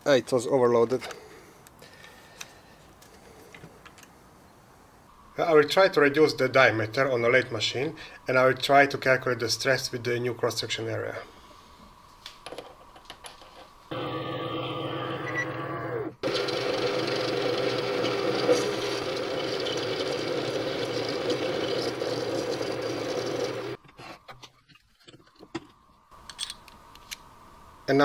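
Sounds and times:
metal lathe cutting steel: 13.9 - 23.8.

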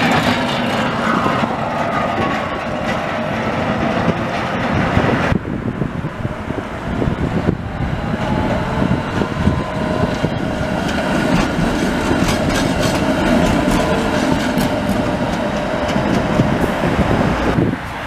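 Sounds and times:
wheels clicking over rails: 0.0 - 5.2, 9.1 - 17.6
tram passing: 0.0 - 18.0.

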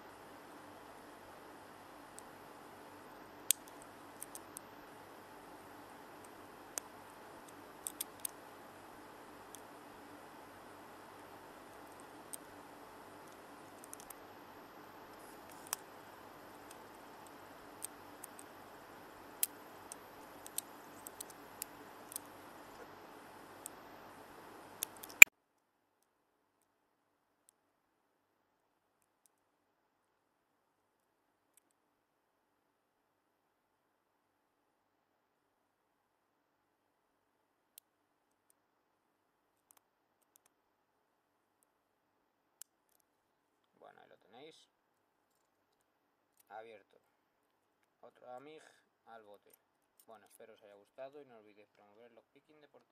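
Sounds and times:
low hiss: 0.0 - 25.3, 27.4 - 52.9.

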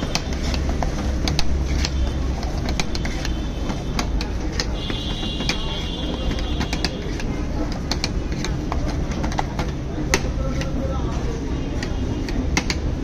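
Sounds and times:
metal spoon scraping steel cup: 0.0 - 8.6
low street rumble: 0.0 - 13.0.

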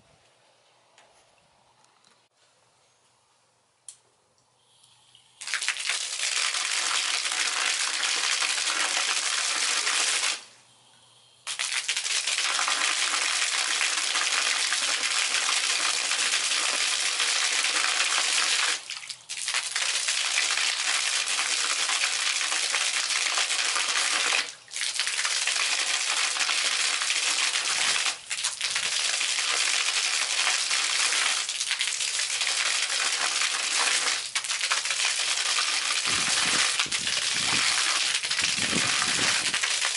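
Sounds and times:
fountain water spraying and splashing: 11.6 - 39.9.

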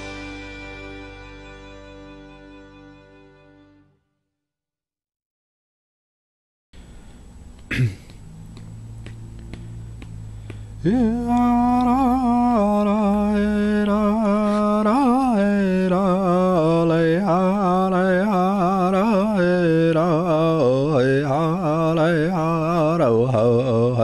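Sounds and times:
person singing a slow chant: 10.8 - 24.0.

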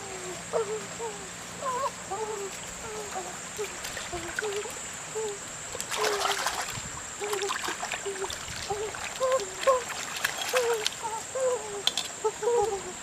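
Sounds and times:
splashing in shallow water: 3.2 - 11.9.

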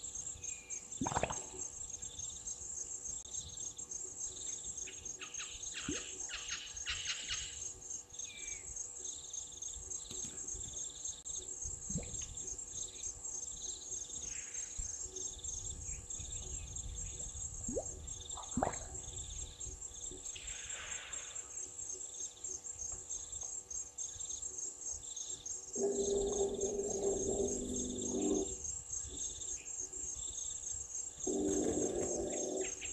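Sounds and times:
insect chorus: 0.0 - 32.9
soft pulsed call: 25.8 - 28.6
bird calls: 31.3 - 32.9.

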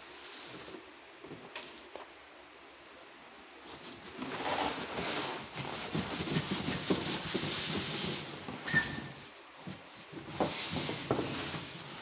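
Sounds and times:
cardboard box scraping: 4.1 - 8.5
brief squeak: 8.6 - 9.2.

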